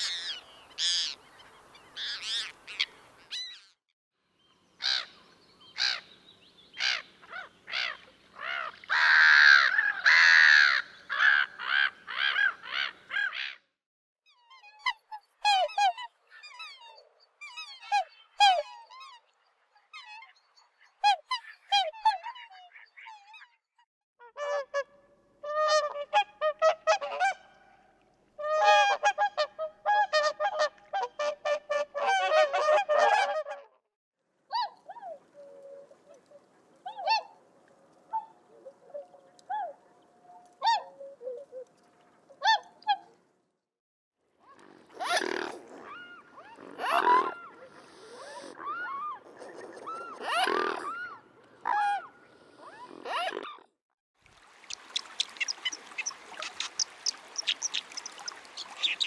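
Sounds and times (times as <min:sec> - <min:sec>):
bird calls: 0:44.9 - 0:53.6, 0:54.7 - 0:59.0.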